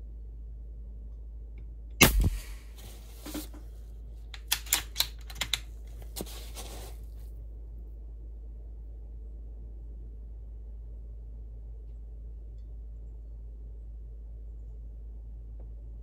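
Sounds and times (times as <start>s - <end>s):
air rifle shot: 2.0s - 2.8s
rifle bolt clicking: 4.4s - 5.6s.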